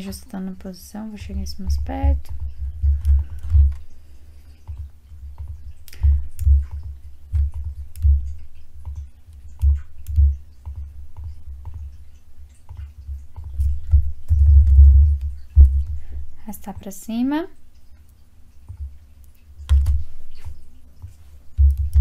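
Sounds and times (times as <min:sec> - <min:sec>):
keyboard key presses: 0:19.6 - 0:22.0.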